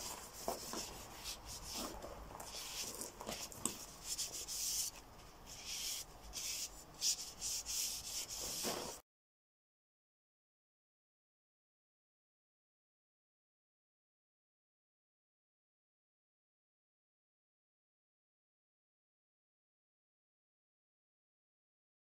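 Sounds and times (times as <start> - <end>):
cloth wiping steel bar: 0.0 - 9.0.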